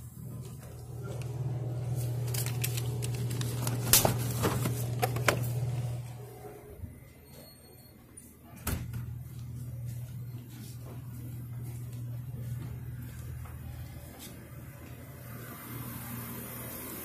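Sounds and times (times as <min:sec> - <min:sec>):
cooler low hum: 0:00.0 - 0:17.0
beer packs clattering on wire shelving: 0:01.9 - 0:06.0.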